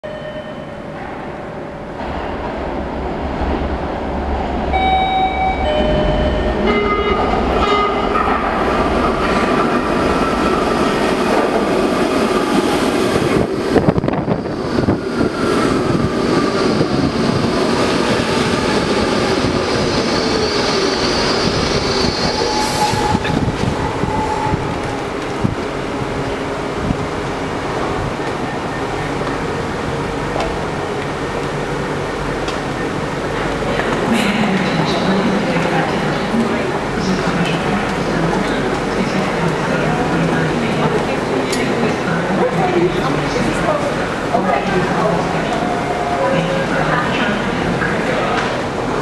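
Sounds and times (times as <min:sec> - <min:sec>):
subway train rumbling: 0:00.0 - 0:49.0
train whine sliding down: 0:02.0 - 0:27.0.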